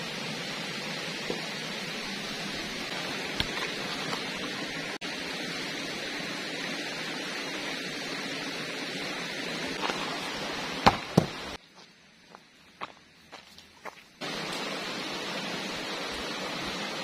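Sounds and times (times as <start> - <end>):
stream running over rocks: 0.0 - 11.6, 14.2 - 17.0
footsteps through undergrowth: 9.8 - 14.8.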